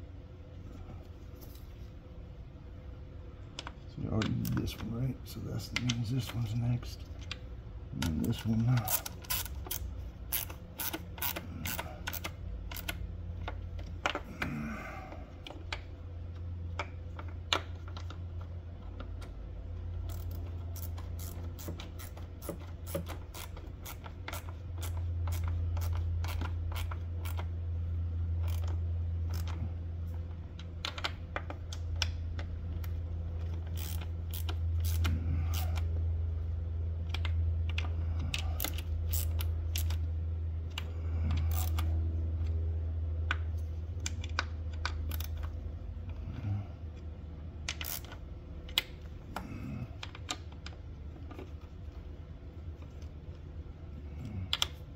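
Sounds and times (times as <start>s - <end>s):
steady low hum: 0.0s - 54.9s
hand ratchet clicking: 8.0s - 14.5s, 19.9s - 27.5s, 28.3s - 29.6s, 30.6s - 35.9s, 37.1s - 40.1s, 40.7s - 41.9s, 43.3s - 45.6s, 47.6s - 50.7s.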